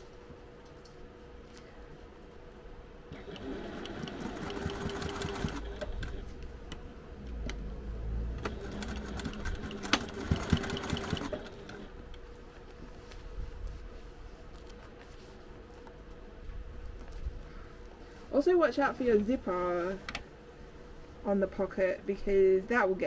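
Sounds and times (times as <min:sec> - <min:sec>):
sewing machine stitching: 0:03.1 - 0:06.3, 0:08.4 - 0:11.9.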